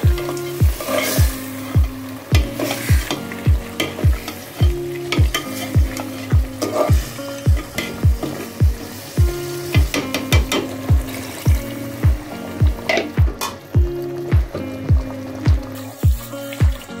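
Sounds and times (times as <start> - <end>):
electronic music with kick drum: 0.0 - 17.0
spoon stirring in a pot: 0.2 - 1.5, 2.3 - 8.6.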